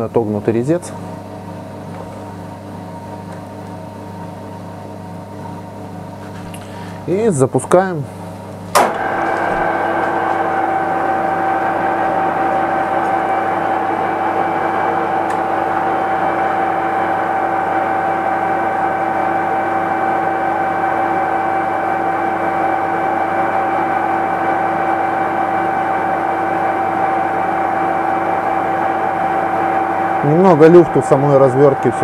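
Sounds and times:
metal lathe whining: 8.8s - 32.0s.

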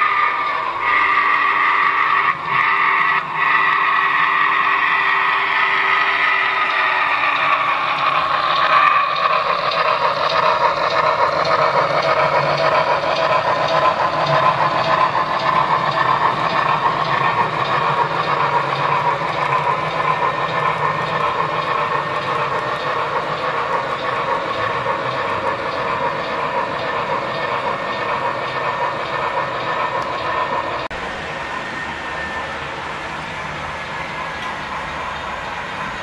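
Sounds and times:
model train rolling along track: 0.0s - 36.0s.

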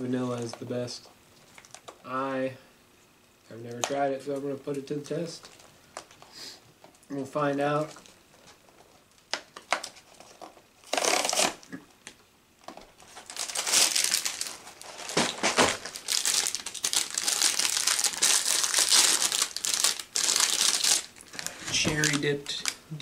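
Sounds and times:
plastic wrapper crinkling: 1.4s - 2.0s, 4.9s - 6.2s, 7.8s - 22.9s.

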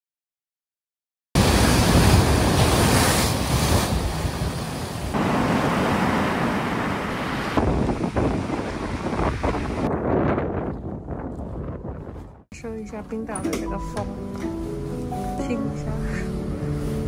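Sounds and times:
strong wind buffeting microphone: 1.4s - 12.5s.

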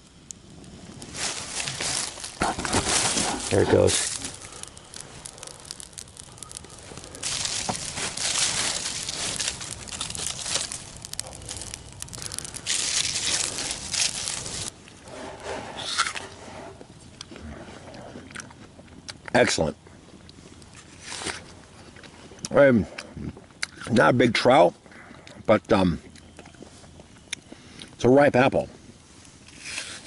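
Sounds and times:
campfire crackling and hissing: 0.0s - 30.0s.

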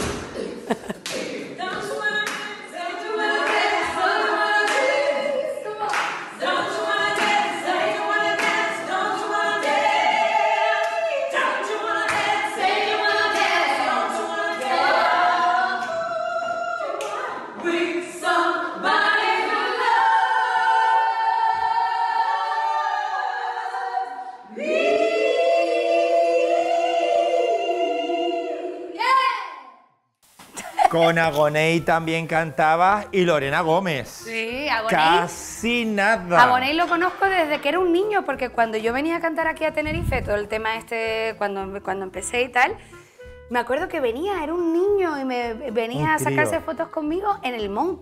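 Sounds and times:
voices singing in harmony: 0.0s - 29.1s, 34.2s - 37.2s, 45.8s - 46.9s.

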